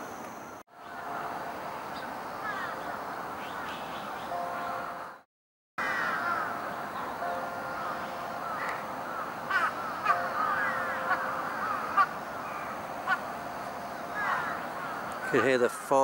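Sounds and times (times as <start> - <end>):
birds chattering and calling: 1.8 - 4.9, 5.8 - 15.8
chime melody over loudspeakers: 4.3 - 5.2, 6.8 - 9.2, 10.1 - 11.7.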